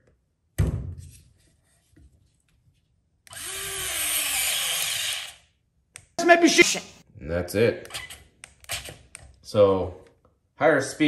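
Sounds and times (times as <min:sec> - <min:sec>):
cordless screwdriver driving screw: 0:03.3 - 0:05.4, 0:07.9 - 0:09.2.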